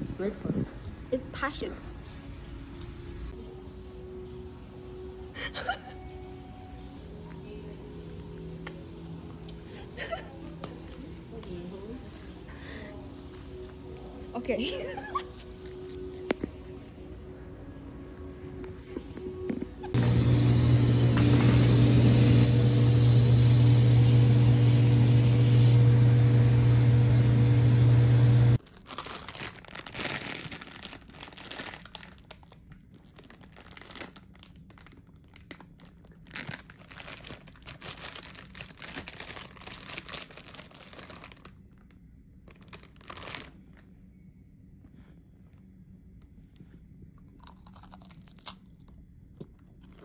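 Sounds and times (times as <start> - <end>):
loud droning hum: 11.2 - 28.6.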